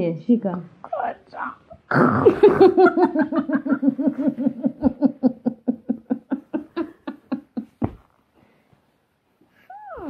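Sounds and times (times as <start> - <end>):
woman laughing: 2.3 - 7.9.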